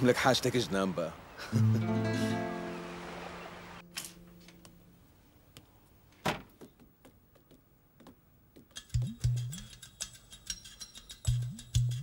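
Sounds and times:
footsteps on tiled floor: 0:06.5 - 0:08.8.

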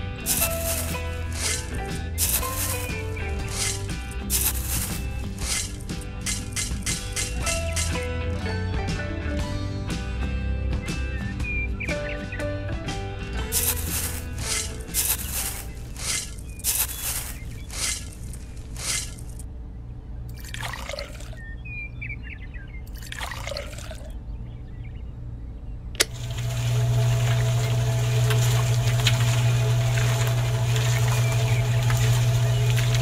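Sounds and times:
water pouring: 0:00.2 - 0:07.9, 0:20.3 - 0:21.4, 0:22.9 - 0:24.1, 0:26.0 - 0:33.0
dry cement mix tipping: 0:00.2 - 0:08.1, 0:13.5 - 0:19.4, 0:26.0 - 0:33.0
small mixer motor humming: 0:26.0 - 0:33.0.

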